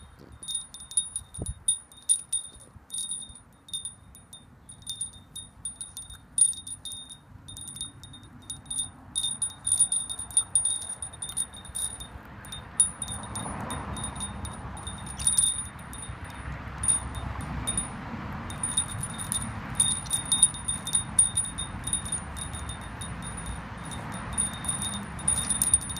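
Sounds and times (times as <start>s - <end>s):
metal wind chime jangling: 0.0s - 25.9s.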